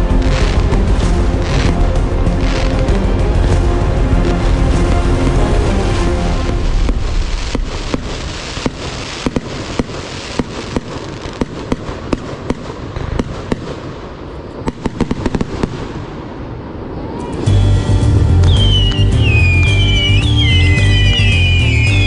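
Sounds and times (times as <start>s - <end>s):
fireworks popping and crackling: 0.0s - 17.5s, 18.4s - 22.0s
rising firework whistle: 16.6s - 22.0s.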